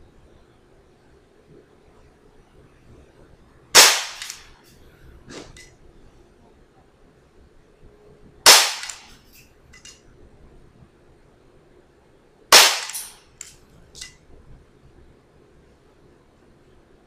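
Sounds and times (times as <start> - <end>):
airsoft pistol shots: 3.8 - 4.5, 8.5 - 9.2, 12.5 - 13.2.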